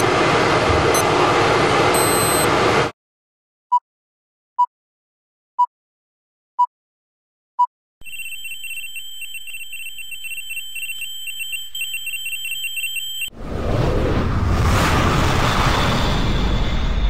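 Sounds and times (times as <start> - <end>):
noisy rush: 0.0 - 2.9
fluttering electronic ringing tone: 2.0 - 2.5, 8.0 - 13.3
short beep: 2.0 - 2.5.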